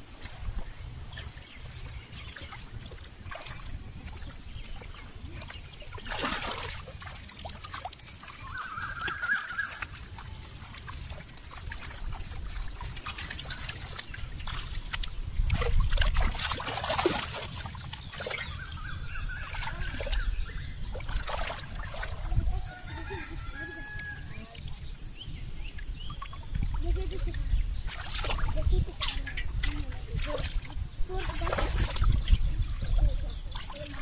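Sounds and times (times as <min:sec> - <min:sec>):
hands splashing in muddy water: 0:00.2 - 0:24.9, 0:27.8 - 0:34.0
rooster crowing: 0:22.5 - 0:24.4.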